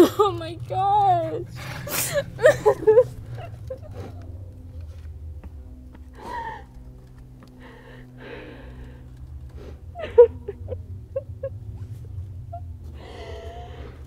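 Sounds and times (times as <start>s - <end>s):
person sobbing and gasping: 0.0s - 4.3s, 6.2s - 6.8s, 9.9s - 11.7s, 12.5s - 14.0s
steady low hum: 0.0s - 14.0s.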